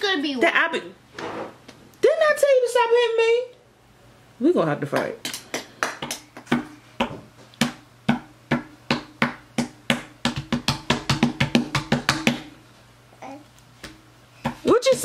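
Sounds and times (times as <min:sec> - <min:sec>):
palms slapping wooden stand: 0:05.0 - 0:12.5.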